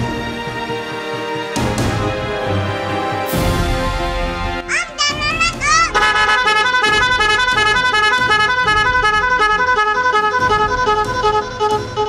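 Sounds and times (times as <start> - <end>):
multi-tone bus air horn tune: 5.8 - 12.0.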